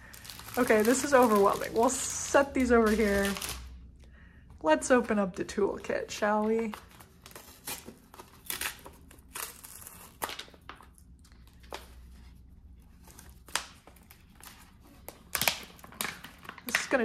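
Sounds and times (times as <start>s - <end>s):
plastic pouch crinkling: 0.0s - 3.8s.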